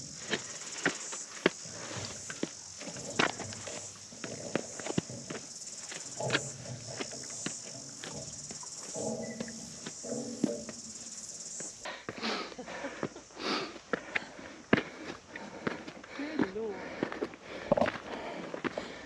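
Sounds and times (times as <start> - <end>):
boots on rough rock: 0.0 - 12.2
insects buzzing: 0.0 - 19.0.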